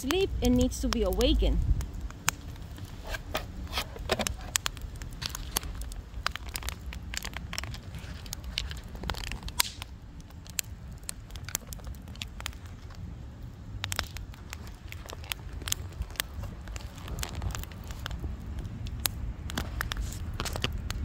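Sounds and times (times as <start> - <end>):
fire crackling: 0.0 - 21.0
low steady rumble: 0.0 - 21.0
sharp pops: 9.1 - 9.9.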